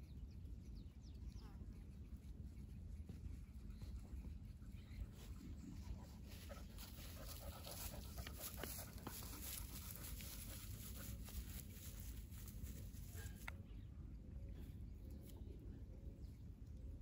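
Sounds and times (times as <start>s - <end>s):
dog panting: 3.0s - 11.7s.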